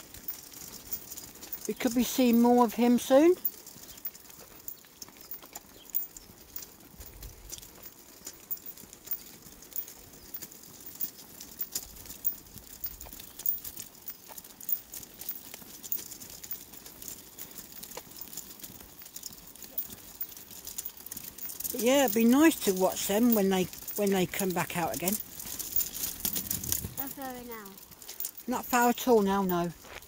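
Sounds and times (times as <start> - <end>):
footsteps on tarmac: 0.0 - 21.8, 29.7 - 30.0
shopping trolley wheels rolling: 0.0 - 29.9.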